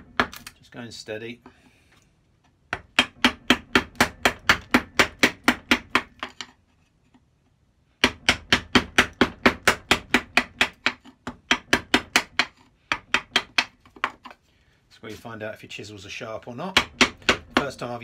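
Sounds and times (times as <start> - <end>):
chisel tapped with mallet: 8.0 - 14.4, 16.7 - 17.8.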